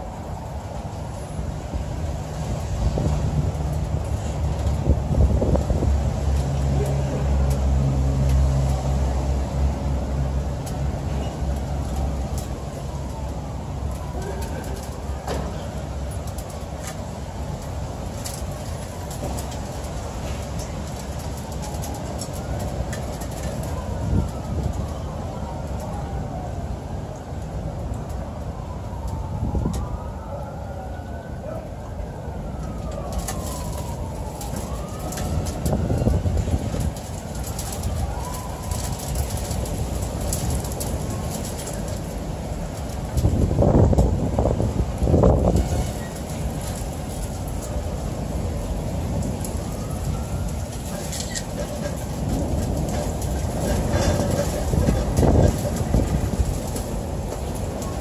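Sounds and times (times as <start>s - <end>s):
city traffic rumble: 0.0s - 58.0s
rain: 0.0s - 58.0s
wind: 0.0s - 58.0s.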